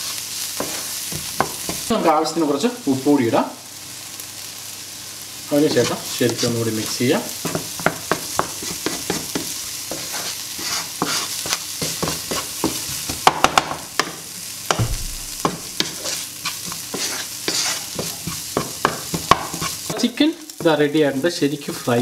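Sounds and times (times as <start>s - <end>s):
chicken sizzling in a pan: 0.0s - 22.0s
spatula scraping and clicking on pan: 7.4s - 13.1s, 15.4s - 20.1s
dull knock: 14.8s - 15.6s.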